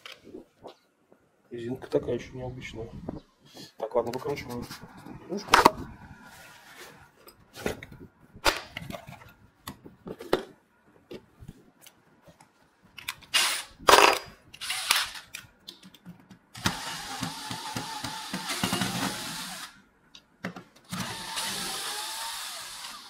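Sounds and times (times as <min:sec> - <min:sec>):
cordless drill running: 0:14.6 - 0:15.2, 0:16.6 - 0:19.8, 0:20.9 - 0:23.0.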